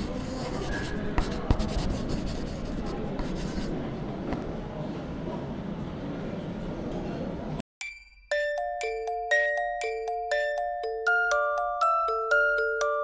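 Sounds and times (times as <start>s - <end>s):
pen scratching on paper: 0.0s - 3.8s.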